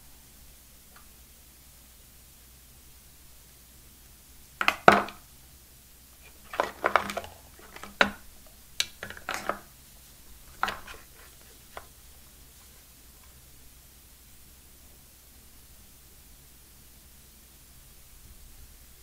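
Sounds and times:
plastic clicks and taps: 4.6 - 5.2, 6.2 - 8.2, 8.8 - 9.6, 10.5 - 11.9.

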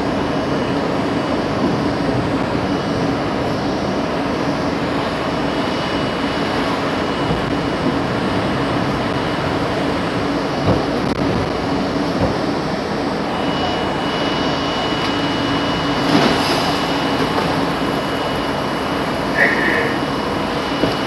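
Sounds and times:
low hum: 0.0 - 21.0
subway car wheels rumbling: 0.0 - 21.0
heavy rain on train car: 4.8 - 21.0.

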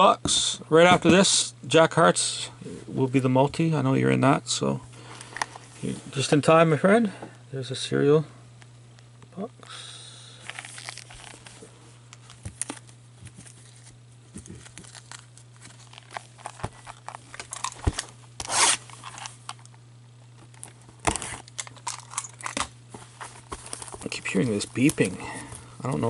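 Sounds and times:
faint low hum: 0.0 - 26.0
plastic shrink wrap crinkling: 10.4 - 19.7, 20.4 - 26.0
plastic wrap ripping: 10.5 - 11.6, 14.4 - 19.6.

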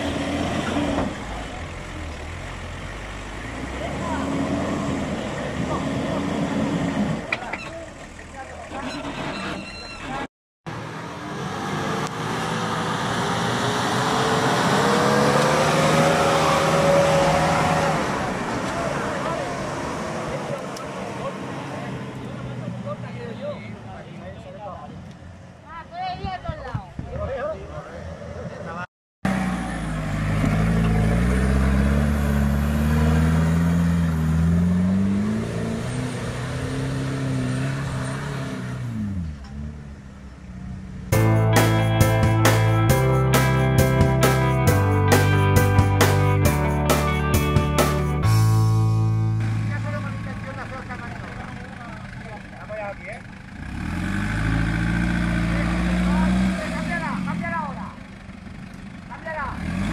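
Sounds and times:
off-road vehicle engine under load: 0.0 - 59.9
engine revving hard: 11.3 - 18.5, 29.2 - 39.3, 53.6 - 57.7, 59.3 - 59.9.

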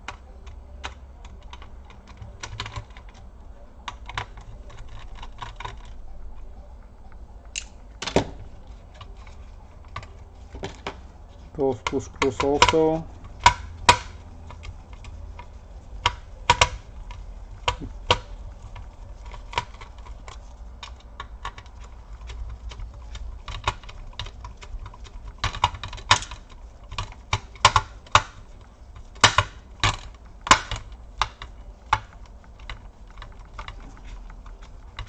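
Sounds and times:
screwdriver clicking on metal: 11.6 - 35.0.

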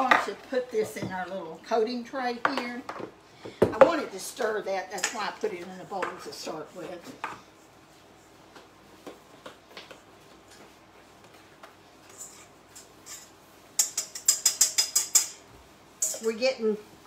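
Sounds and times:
fork scraping and tapping metal bowl: 12.1 - 15.4, 16.0 - 16.3.

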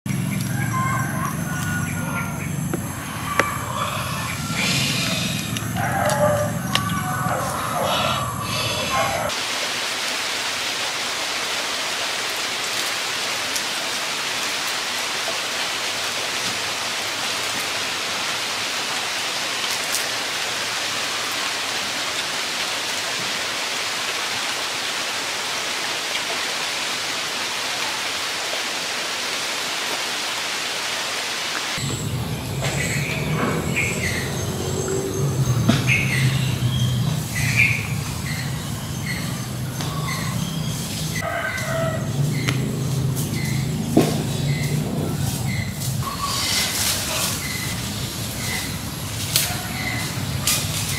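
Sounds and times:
steady hiss: 42.8 - 50.9.

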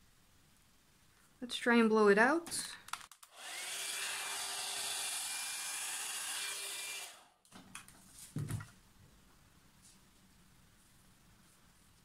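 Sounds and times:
hair dryer blowing: 3.3 - 7.3.

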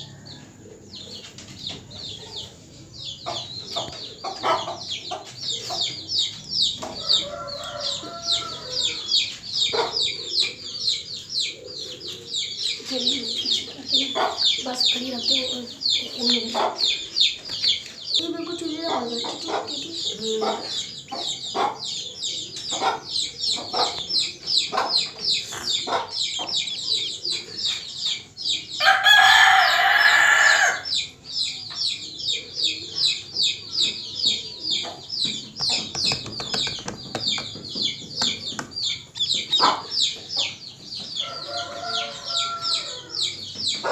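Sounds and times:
duckling peeping: 30.9 - 41.4.

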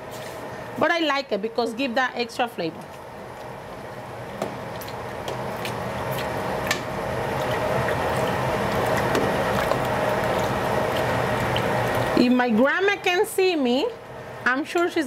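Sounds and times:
beans bubbling in a pot: 3.0 - 12.3.

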